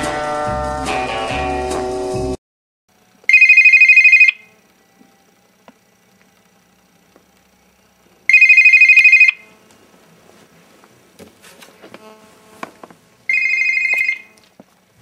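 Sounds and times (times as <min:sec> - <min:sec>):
phone ringing with trilling bell: 0:03.3 - 0:05.3, 0:08.3 - 0:09.5, 0:13.3 - 0:14.4
handling rustling and knocks: 0:09.6 - 0:13.1.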